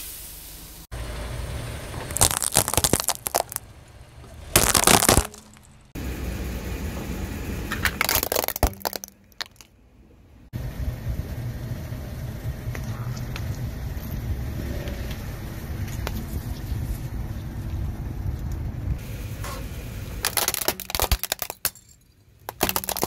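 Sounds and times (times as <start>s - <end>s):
low engine rumble: 0.1s - 23.0s
tyre crunching objects: 2.1s - 5.8s, 22.5s - 23.0s.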